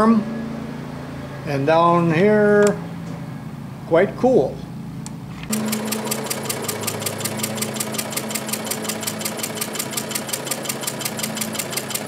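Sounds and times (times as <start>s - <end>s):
steady engine hum: 0.1s - 12.0s
engine clattering rapidly: 5.5s - 12.0s.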